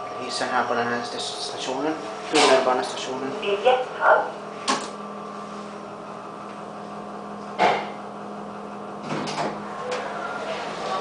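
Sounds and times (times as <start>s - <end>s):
sharp clunk: 7.6s - 7.9s.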